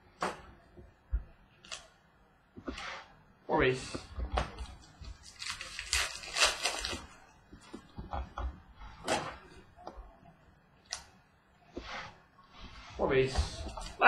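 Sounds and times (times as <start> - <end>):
foil wrapper crinkling: 5.1 - 7.2.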